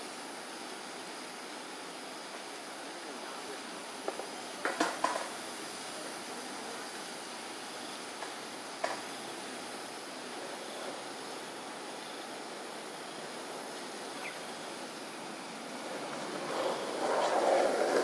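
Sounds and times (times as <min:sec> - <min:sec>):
distant road traffic hum: 0:08.0 - 0:18.0.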